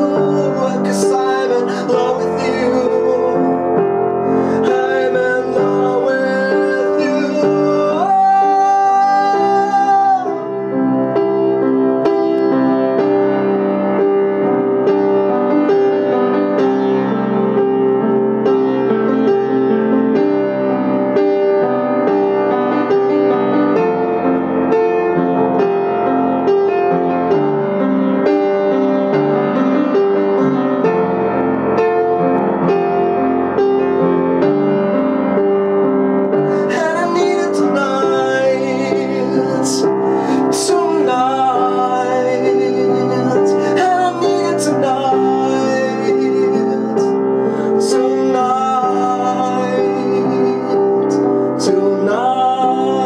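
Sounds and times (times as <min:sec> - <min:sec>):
man singing: 0:00.0 - 0:11.2, 0:36.4 - 0:53.0
upright piano playing: 0:00.0 - 0:53.0.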